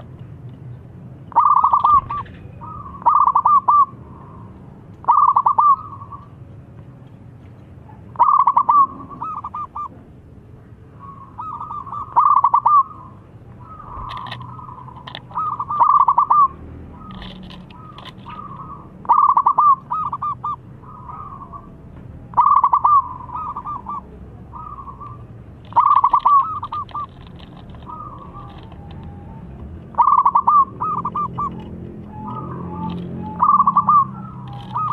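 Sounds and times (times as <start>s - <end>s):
dove staccato cooing: 1.3s - 6.4s, 7.8s - 10.0s, 10.9s - 34.9s.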